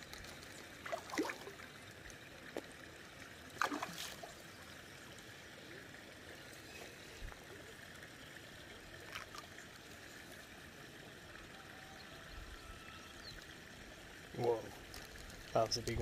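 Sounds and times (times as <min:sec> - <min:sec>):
pond water trickling: 0:00.0 - 0:16.0
fish splashing at surface: 0:00.2 - 0:01.7, 0:03.6 - 0:04.4.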